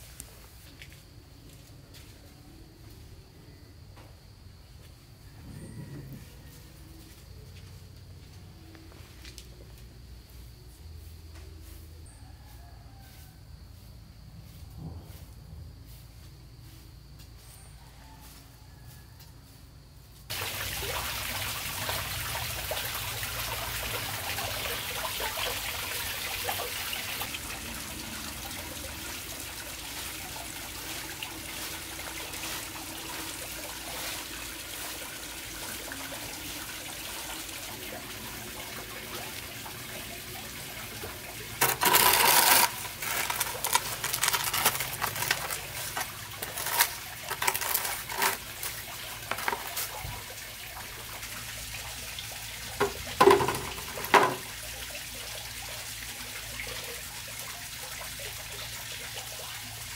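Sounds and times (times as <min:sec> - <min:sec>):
broom sweeping concrete: 0:29.8 - 0:34.4, 0:40.9 - 0:50.2
dirt swept into plastic dustpan: 0:41.6 - 0:50.1.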